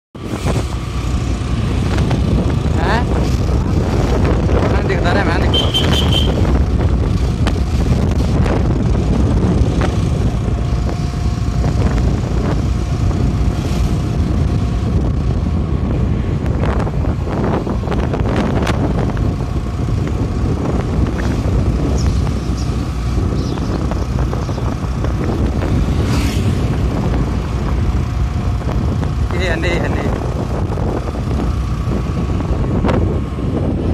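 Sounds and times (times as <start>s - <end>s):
vehicle driving rumble: 0.2s - 33.9s
wind buffeting microphone: 0.2s - 33.9s.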